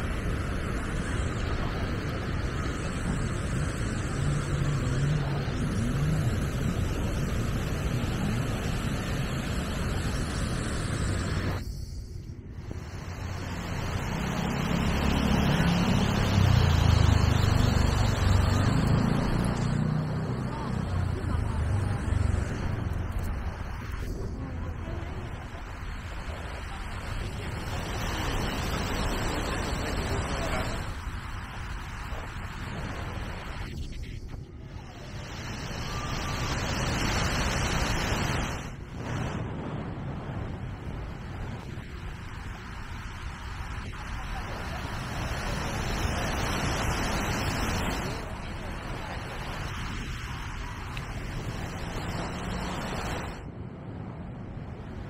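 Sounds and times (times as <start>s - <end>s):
wind rumbling on microphone: 0.0s - 55.0s
voices of people: 14.3s - 37.3s
surf washing: 23.6s - 33.7s, 34.9s - 53.5s.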